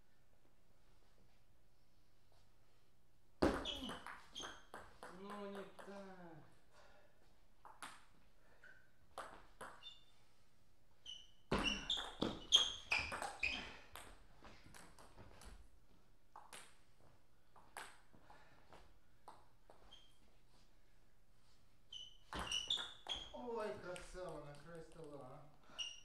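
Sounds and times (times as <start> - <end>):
table tennis ball bouncing: 3.4 - 6.0, 7.6 - 8.2, 9.1 - 10.0, 11.5 - 15.1, 16.3 - 16.8, 22.3 - 23.3.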